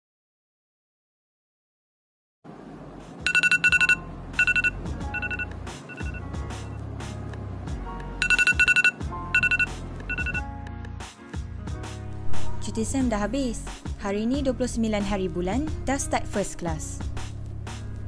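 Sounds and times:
background music: 3.0s - 18.0s
phone alarm beeping: 3.3s - 6.4s, 8.2s - 10.5s.

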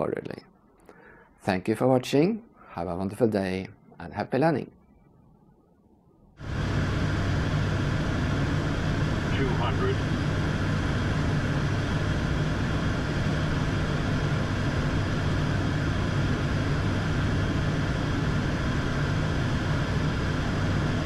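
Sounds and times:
constant low hum: 4.7s - 21.0s
airliner engine and airflow noise: 6.4s - 21.0s.

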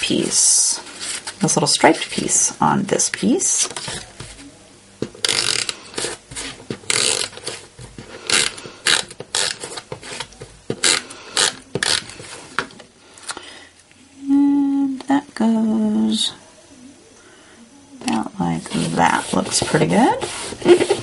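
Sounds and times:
rasping strokes on cardstock: 18.6s - 21.0s.

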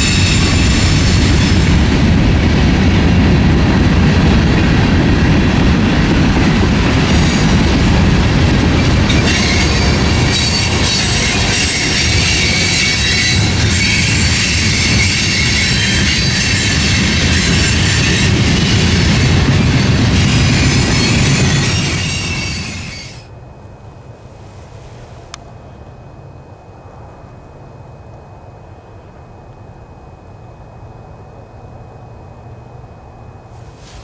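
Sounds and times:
train wheels rumbling on rail: 0.0s - 32.8s, 33.4s - 34.0s
high-pitched wheel squeal: 9.1s - 23.3s.

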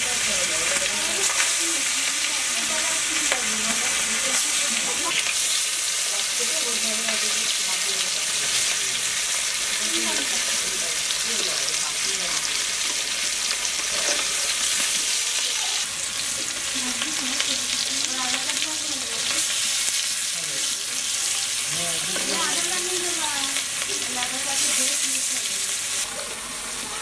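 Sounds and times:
fish sizzling in hot oil: 0.0s - 27.0s
spatula scraping pan: 12.8s - 15.2s.

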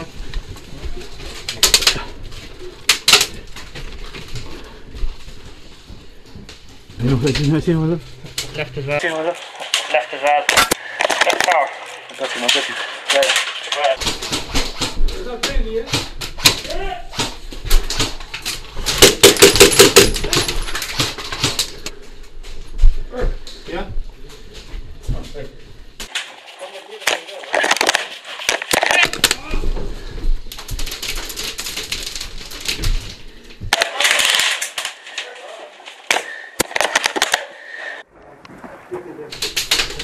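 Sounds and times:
airsoft gunfire: 18.9s - 20.2s.

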